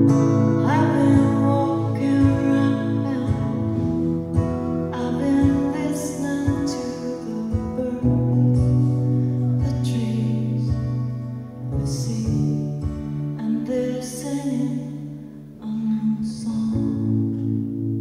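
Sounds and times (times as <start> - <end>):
strummed acoustic guitar: 0.0 - 18.0
woman singing: 0.4 - 17.4.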